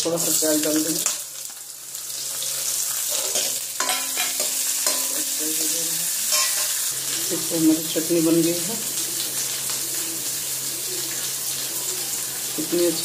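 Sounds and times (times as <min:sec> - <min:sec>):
onions sizzling in hot oil: 0:00.0 - 0:13.0
ladle scraping and clinking on pan: 0:03.1 - 0:05.2, 0:06.3 - 0:06.8.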